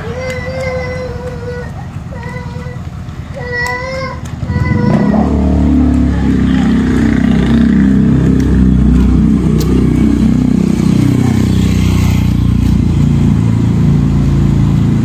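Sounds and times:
motorcycle engine passing: 4.5 - 15.0.

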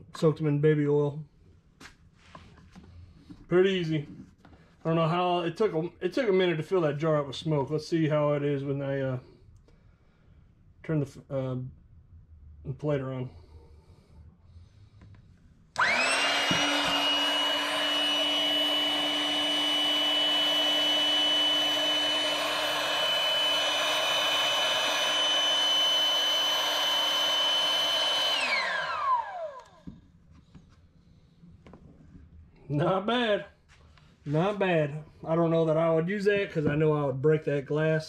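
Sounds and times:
electric air inflator whining: 15.8 - 30.0.

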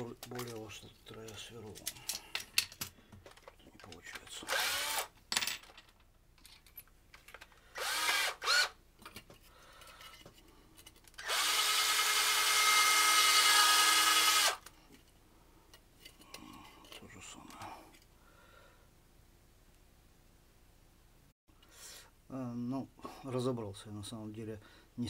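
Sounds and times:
cordless drill spinning: 4.4 - 5.1, 7.7 - 8.8, 11.2 - 14.7.

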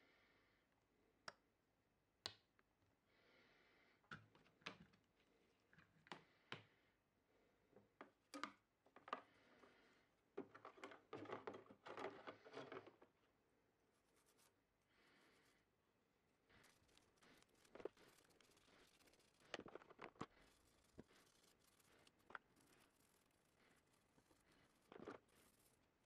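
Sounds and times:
rubbing and clicking in water tub: 8.9 - 13.2, 16.5 - 26.0.

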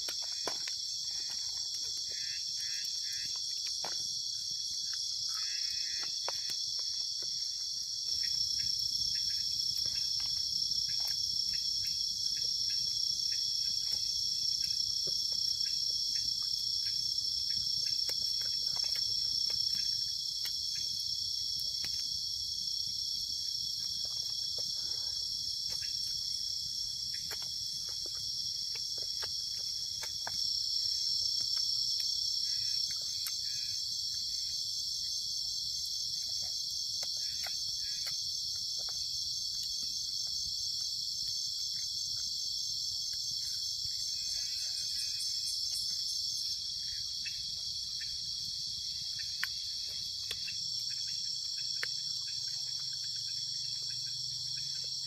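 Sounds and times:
small clicks and crackles: 0.0 - 2.2, 13.7 - 21.0, 27.1 - 33.5, 36.2 - 40.4
crickets and insects chirping: 0.0 - 55.0.

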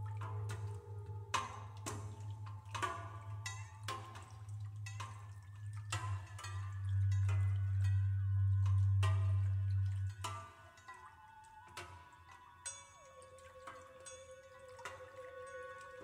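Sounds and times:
steady low drone: 0.0 - 10.6
sparse percussion strokes: 0.0 - 16.0.

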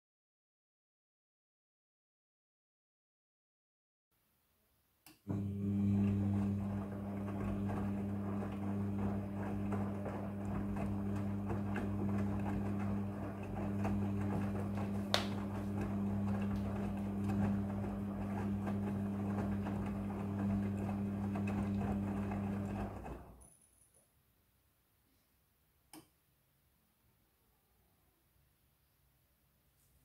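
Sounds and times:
washing machine motor hum: 5.3 - 23.4.

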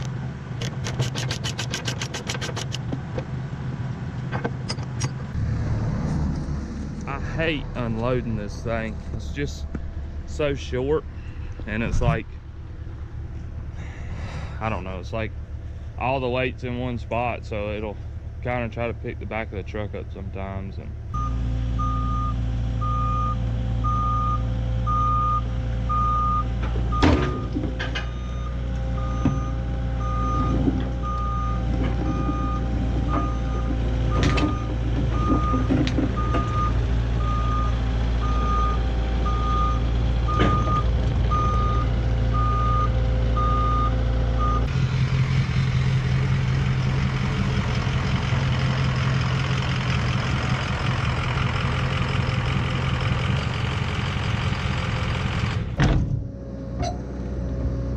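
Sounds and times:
diesel engine running: 0.0 - 57.9.

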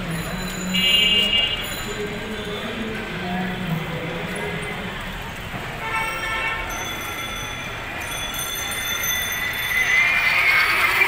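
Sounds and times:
vehicle horns honking: 0.7 - 1.7, 5.8 - 6.7.

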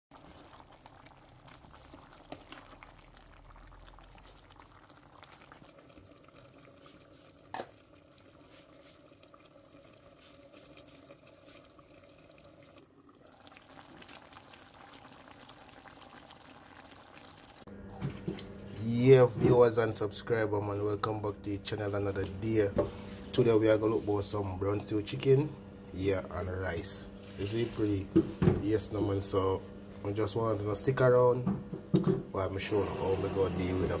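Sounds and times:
stew bubbling and crackling: 0.0 - 17.7.

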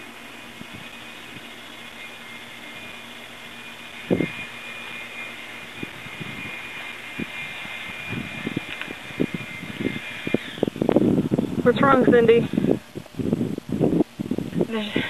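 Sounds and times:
high-pitched drone with whine: 0.0 - 15.0.

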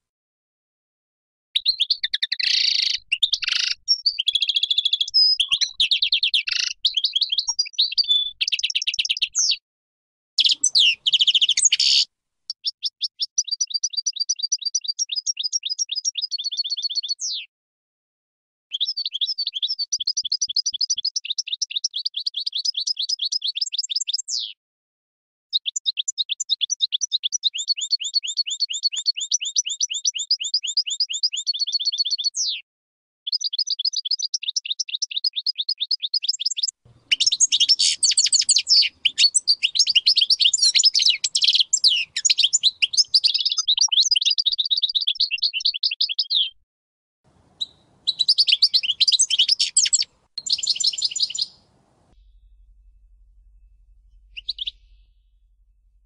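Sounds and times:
goldfinch singing: 1.6 - 9.6, 10.4 - 17.4, 33.3 - 46.6, 47.5 - 52.4, 53.8 - 55.3.

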